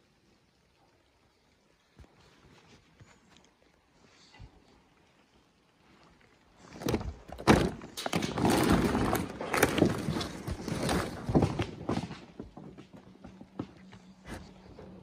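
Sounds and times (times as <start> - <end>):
wooden shingles clattering: 6.6 - 13.8
boots stepping on wooden shingles: 6.8 - 15.0.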